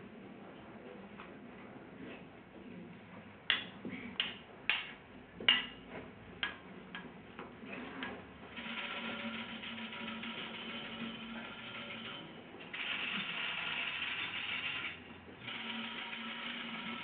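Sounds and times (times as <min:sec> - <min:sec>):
sharp taps on hanging objects: 0:03.5 - 0:07.5
continuous rattle: 0:08.5 - 0:17.0.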